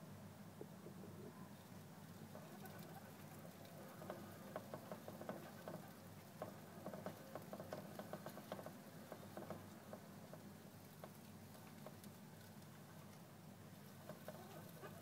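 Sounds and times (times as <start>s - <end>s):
low steady hum: 0.0s - 15.0s
hamster wheel clicking: 2.4s - 12.2s.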